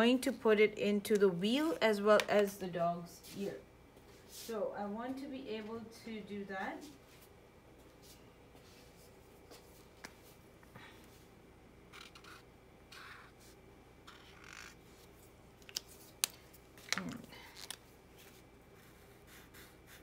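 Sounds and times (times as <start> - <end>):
marker rubbing on paper: 11.9 - 14.7.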